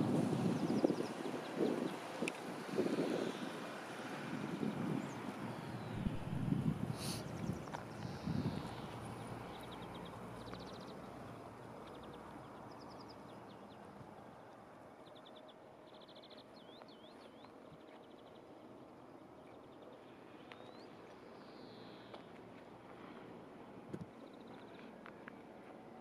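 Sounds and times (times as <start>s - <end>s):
faint outdoor hiss: 0.0s - 26.0s
small birds chirping: 4.8s - 25.2s
low rumble: 5.8s - 8.8s.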